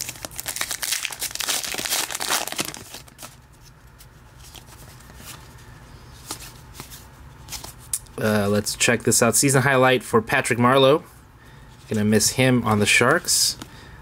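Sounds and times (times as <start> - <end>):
wrapper crinkling and tearing: 0.0 - 3.4
cards rustling and flipping: 0.0 - 5.6, 6.2 - 8.0.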